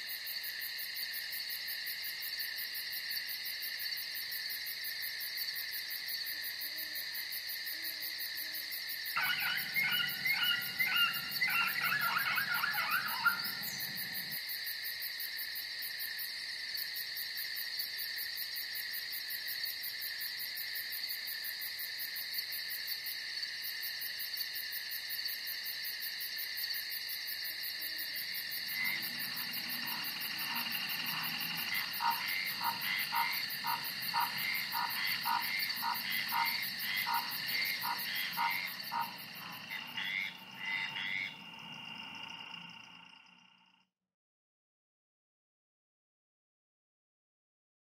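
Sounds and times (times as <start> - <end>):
insects trilling: 0.0 - 43.8
frogs calling: 9.0 - 14.6, 27.7 - 43.8.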